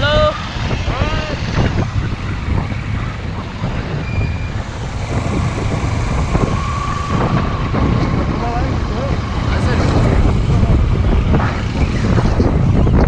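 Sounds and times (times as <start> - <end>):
faint steady whine: 0.0 - 13.0
motorcycle engine running: 0.0 - 13.0
wind buffeting microphone: 0.0 - 13.0.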